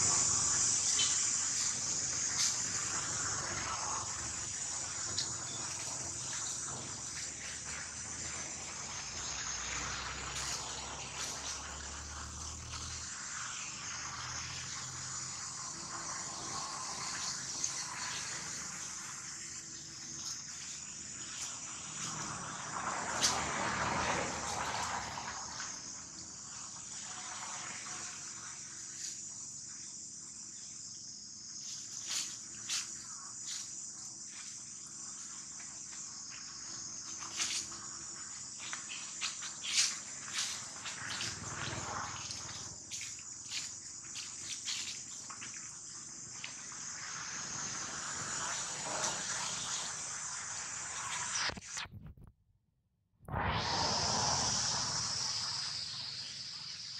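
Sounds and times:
dry leaves rustling: 0:00.0 - 0:13.6, 0:37.1 - 0:45.6
insects buzzing: 0:00.0 - 0:51.7, 0:53.7 - 0:56.9.

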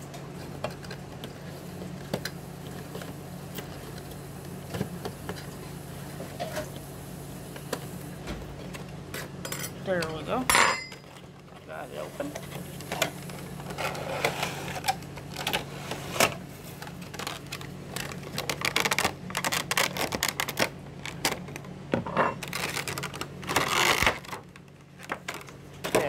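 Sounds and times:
low steady hum: 0:00.0 - 0:26.0
plastic packaging clicking and crinkling: 0:11.0 - 0:21.8, 0:22.4 - 0:26.0.

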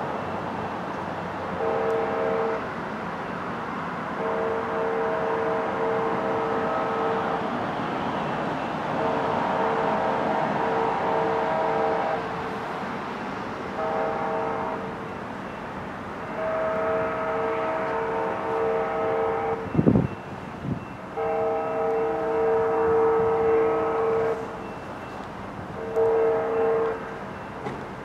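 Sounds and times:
locomotive air horn: 0:01.6 - 0:02.7, 0:04.2 - 0:07.6, 0:08.9 - 0:12.6, 0:13.7 - 0:15.2, 0:16.2 - 0:19.9, 0:21.1 - 0:24.6, 0:25.7 - 0:27.2.

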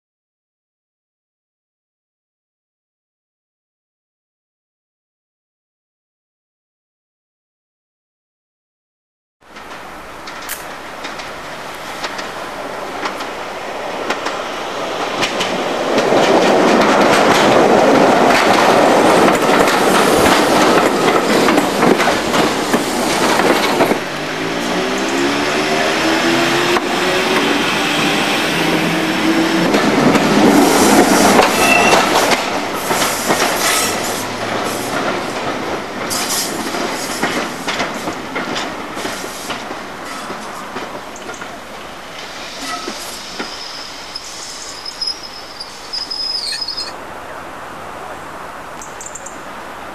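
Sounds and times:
train wheels clattering on rails: 0:09.5 - 0:46.8
clicks over rail joints: 0:15.0 - 0:24.0
wheel squeal: 0:31.4 - 0:32.2, 0:42.6 - 0:47.0.

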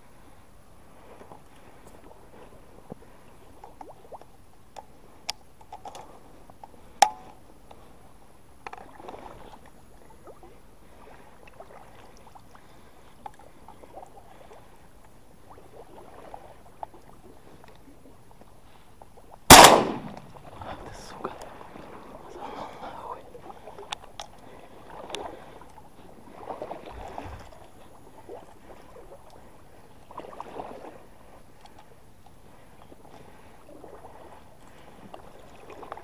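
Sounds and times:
shotgun shot: 0:19.5 - 0:20.3.

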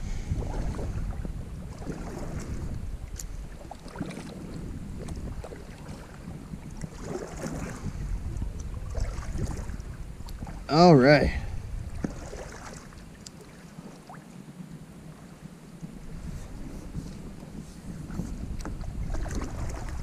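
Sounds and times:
faint water and hull sounds: 0:00.0 - 0:20.0
wind rumbling on microphone: 0:00.0 - 0:20.0.

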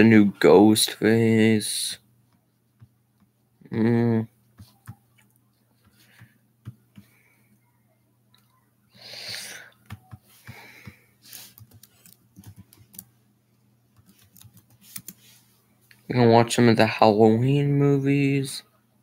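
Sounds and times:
faint steady hum: 0:00.0 - 0:19.0
breathy hiss: 0:09.0 - 0:09.8
typing on computer keyboard: 0:10.8 - 0:13.1, 0:14.0 - 0:15.2.

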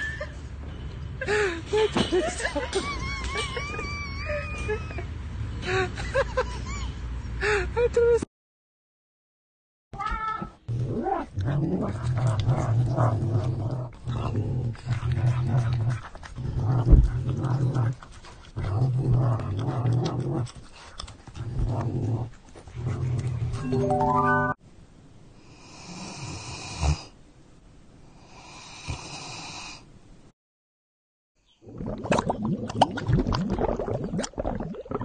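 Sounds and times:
rising beeping tones: 0:23.6 - 0:24.6.

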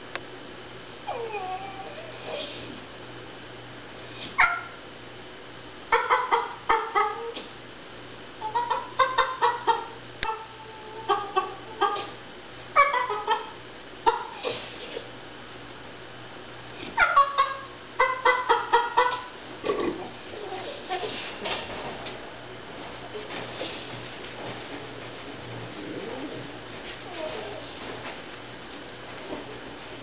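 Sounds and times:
dog yipping: 0:04.4 - 0:04.8, 0:11.8 - 0:12.2, 0:12.8 - 0:13.5.

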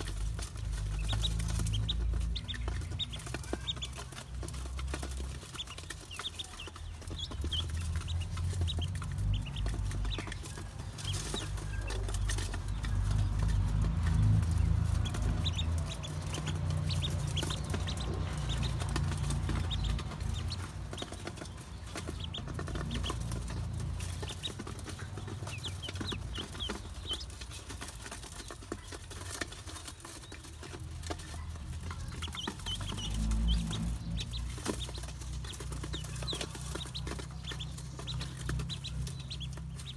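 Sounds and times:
bills pecking metal bowl: 0:00.0 - 0:39.9
ducklings peeping: 0:00.0 - 0:39.9
low rumble: 0:06.9 - 0:27.4, 0:31.0 - 0:39.9.

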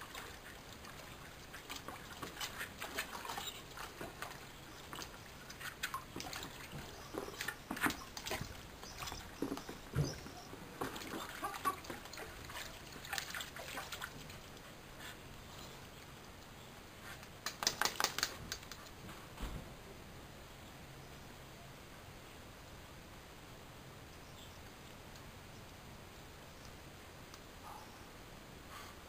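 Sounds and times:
dog splashing in water: 0:00.0 - 0:14.4.

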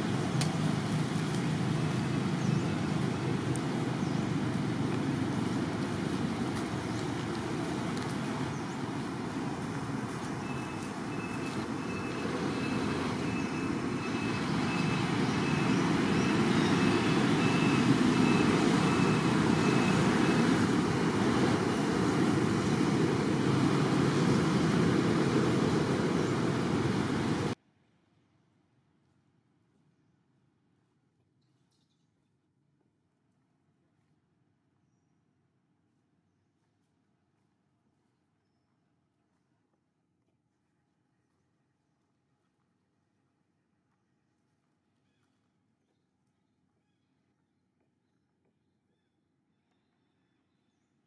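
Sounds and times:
distant traffic rumble: 0:00.0 - 0:27.6.

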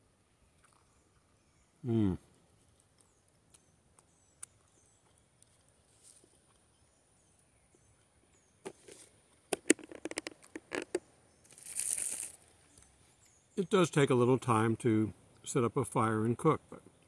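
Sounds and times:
close crackles and clicks: 0:02.7 - 0:06.7, 0:08.6 - 0:13.3
small bird chirps: 0:03.0 - 0:05.6.

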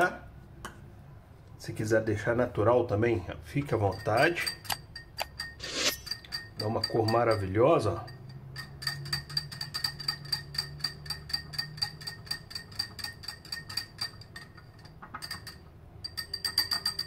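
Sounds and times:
whisk clinking against ceramic bowl: 0:03.5 - 0:17.0.

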